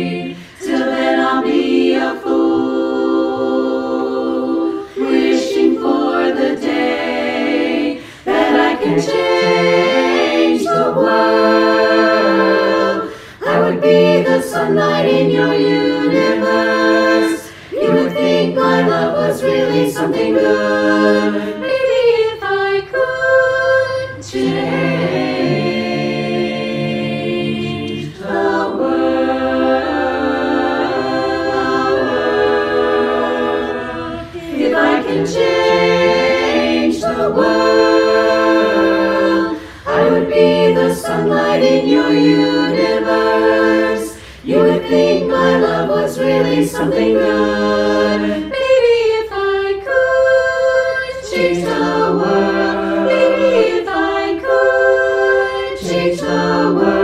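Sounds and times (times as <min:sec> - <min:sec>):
women's chorus singing a cappella: 0:00.0 - 0:57.0
singers breathing: 0:00.3 - 0:00.6, 0:04.7 - 0:05.2, 0:07.9 - 0:08.4, 0:13.0 - 0:13.5, 0:17.4 - 0:17.8, 0:34.0 - 0:34.6, 0:39.5 - 0:40.0, 0:44.1 - 0:44.5.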